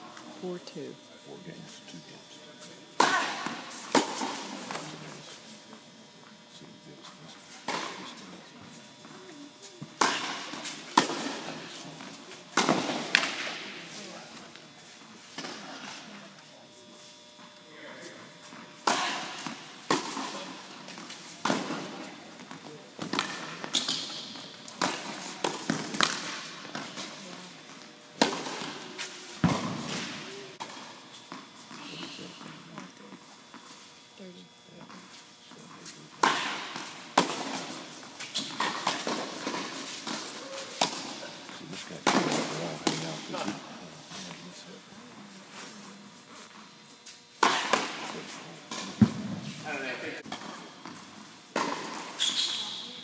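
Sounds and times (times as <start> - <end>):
tennis balls hit with rackets: 3.0 - 4.8, 9.8 - 14.0, 18.8 - 31.4, 36.1 - 43.8, 47.4 - 49.6, 50.3 - 52.2
tennis balls bouncing: 21.1 - 27.2.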